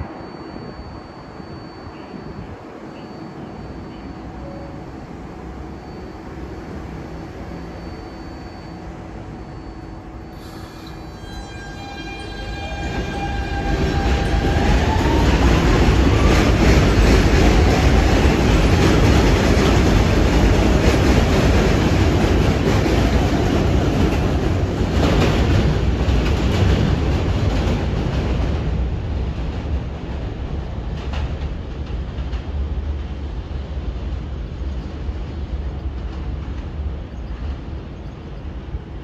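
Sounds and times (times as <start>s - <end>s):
subway train electrical hum: 0.0s - 39.0s
train wheels rumbling: 3.4s - 39.0s
traction motors whining: 5.0s - 19.1s
clickety-clack of rail joints: 11.8s - 39.0s.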